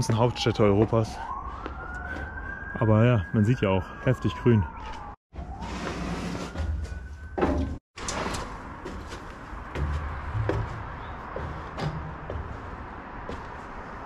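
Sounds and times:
footsteps on metal stairs: 0:06.8 - 0:14.0
dull thuds: 0:08.8 - 0:13.7.

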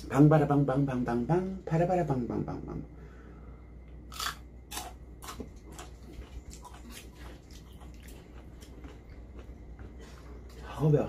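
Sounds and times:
soft eating sounds: 0:03.6 - 0:11.0.

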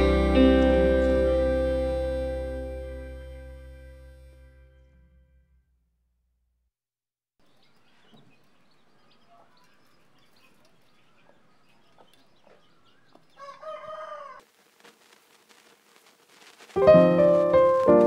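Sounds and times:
chicks and hen peeping: 0:07.5 - 0:14.4
rooster crowing: 0:13.2 - 0:14.5.

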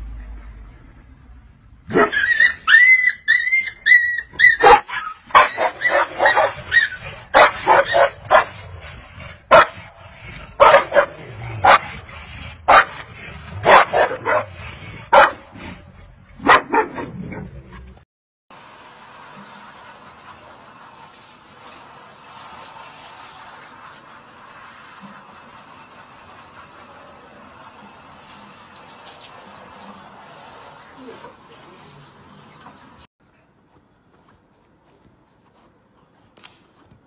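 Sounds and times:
dogs yelping: 0:01.9 - 0:08.5
dogs barking: 0:01.9 - 0:15.6, 0:16.4 - 0:17.1.

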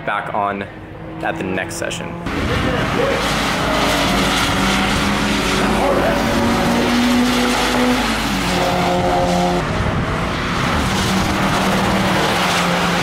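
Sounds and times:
race car engine: 0:00.0 - 0:13.0
tyres hissing on wet track: 0:03.0 - 0:09.6.

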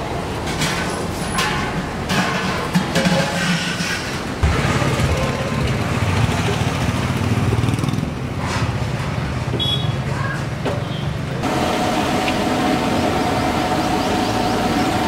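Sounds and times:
gas burner roar: 0:11.4 - 0:15.0
hot oil frying: 0:11.4 - 0:15.0.

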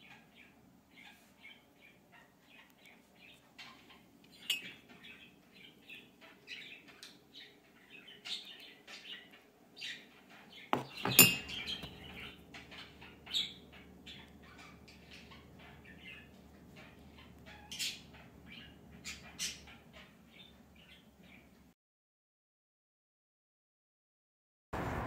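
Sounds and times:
small birds chirping: 0:00.0 - 0:21.7
sharp knocks: 0:10.8 - 0:12.1.

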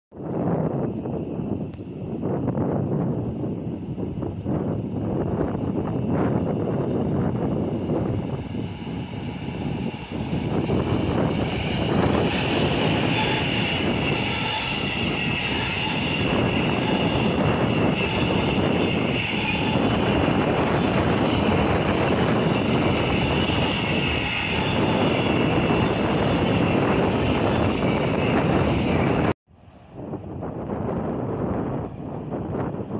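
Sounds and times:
train wheels rumbling: 0:00.4 - 0:32.9
wheel squeal: 0:08.9 - 0:29.3.

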